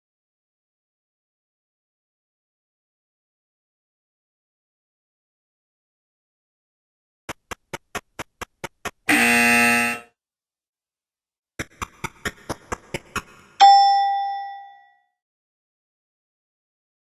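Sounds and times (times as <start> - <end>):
harsh buzzer: 9.1 - 10.2
bright bell ding: 13.6 - 15.0.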